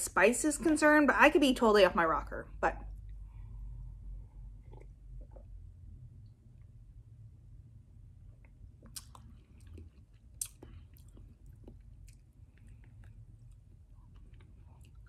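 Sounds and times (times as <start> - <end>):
lip smacks: 8.4 - 15.0
person chewing: 8.4 - 15.0
sharp mouth clicks: 8.8 - 13.2.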